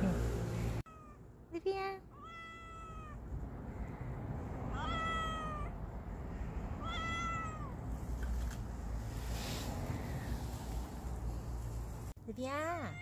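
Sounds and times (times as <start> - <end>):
cat meowing: 0.9 - 1.2, 2.1 - 3.2, 4.7 - 5.8, 6.8 - 7.8, 12.8 - 13.0.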